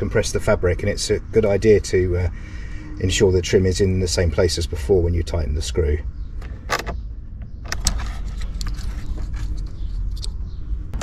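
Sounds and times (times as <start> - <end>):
screwdriver scraping and clicking: 7.7 - 10.4.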